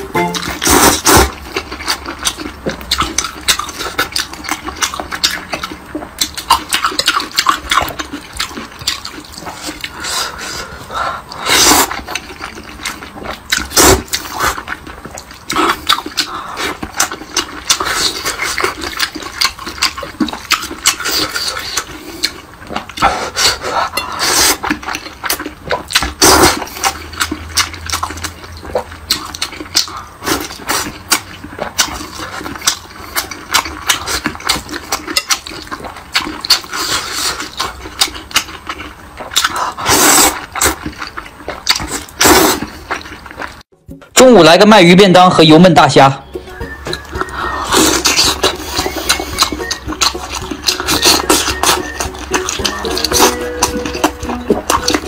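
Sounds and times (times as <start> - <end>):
wet chewing: 0.0 - 43.7, 46.3 - 55.0
noodle slurping: 39.4 - 40.8, 46.6 - 55.0
lip smacking: 46.4 - 55.0.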